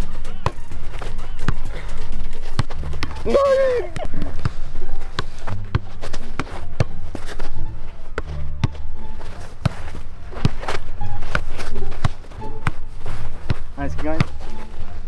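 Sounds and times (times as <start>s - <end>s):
footsteps on artificial turf: 0.0s - 15.0s
football being kicked: 2.4s - 7.2s, 10.4s - 14.4s.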